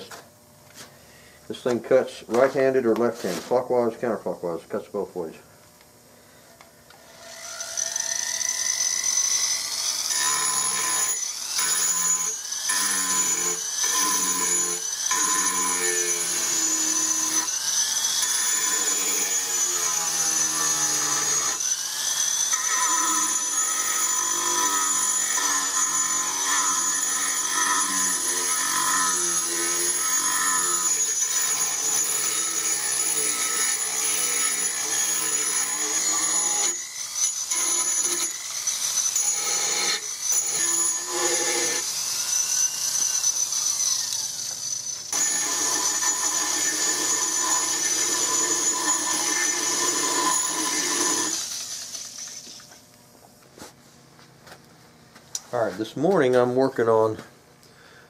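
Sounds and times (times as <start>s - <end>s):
rotary tool grinding wood: 7.0s - 52.6s.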